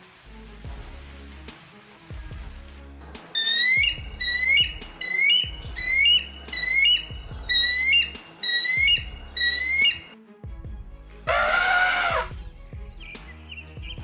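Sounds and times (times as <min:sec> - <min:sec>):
eagle whistled calls: 0:03.3 - 0:10.2.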